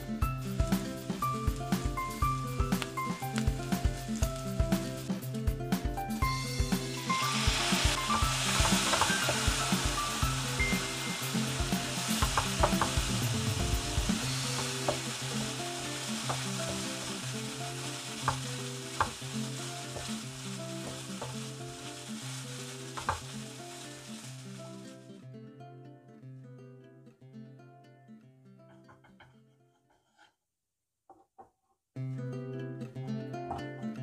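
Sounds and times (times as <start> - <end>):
meat sizzling in oil: 0.4 - 5.0, 6.2 - 25.1.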